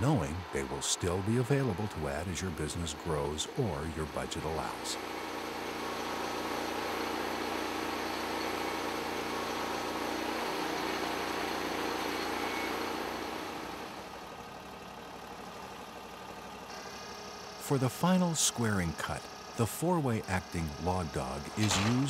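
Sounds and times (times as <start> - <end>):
sawmill blade cutting log: 0.0 - 13.5, 20.2 - 22.0.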